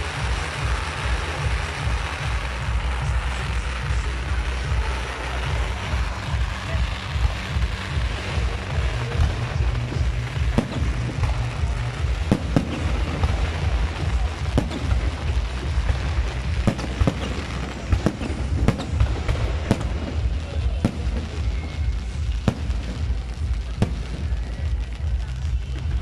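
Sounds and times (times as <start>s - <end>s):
crackling fireworks fountains: 0.0s - 26.0s
fireworks bangs: 0.0s - 26.0s.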